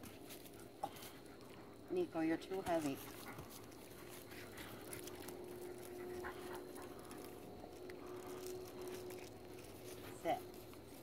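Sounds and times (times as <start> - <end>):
wolves panting and sniffing: 0.0 - 11.0.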